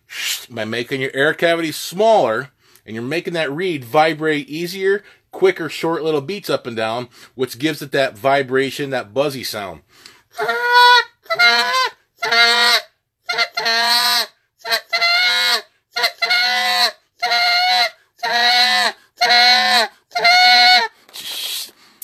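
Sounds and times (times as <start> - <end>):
goose call buzzy notes: 10.4 - 21.7.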